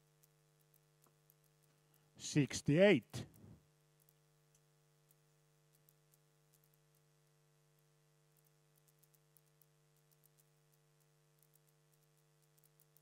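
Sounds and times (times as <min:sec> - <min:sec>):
faint ticks: 0:00.0 - 0:02.1, 0:03.3 - 0:13.0
faint electrical hum: 0:00.0 - 0:13.0.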